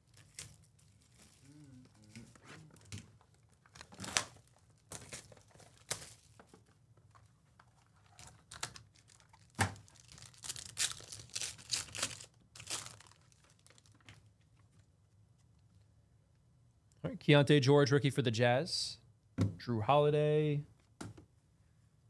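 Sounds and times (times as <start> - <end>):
foil wrapper tearing and crinkling: 0.0 - 1.5, 2.2 - 6.4, 8.1 - 14.2.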